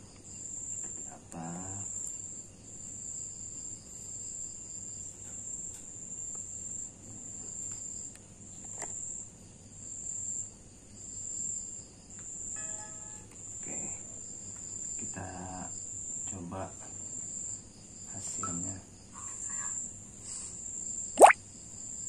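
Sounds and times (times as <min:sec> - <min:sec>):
crickets trilling: 0:00.1 - 0:08.1, 0:13.5 - 0:22.0.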